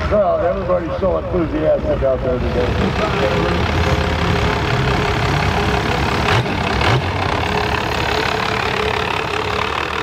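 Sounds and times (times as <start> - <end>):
car engine running: 1.8 - 10.0
engine revs: 2.4 - 10.0.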